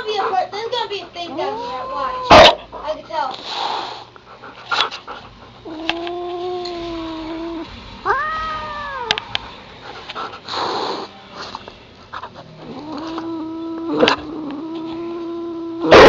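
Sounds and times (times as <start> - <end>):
cat hissing: 1.2 - 11.2, 12.3 - 16.0
cat yowling: 1.3 - 2.6, 5.6 - 9.3, 12.6 - 16.0.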